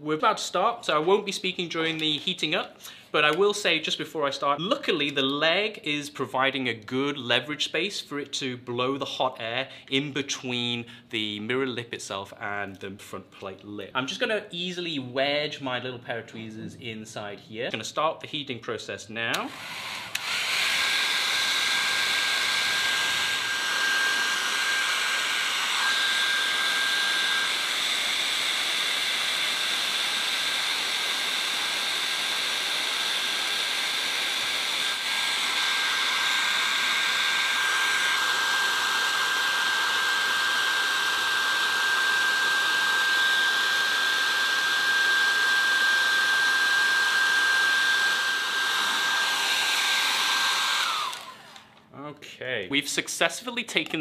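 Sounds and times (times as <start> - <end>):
hair dryer running: 19.3 - 51.8.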